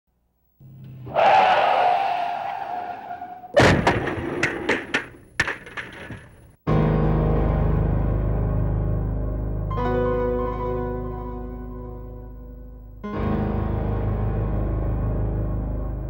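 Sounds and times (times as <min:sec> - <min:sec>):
piano music: 0:06.7 - 0:16.0.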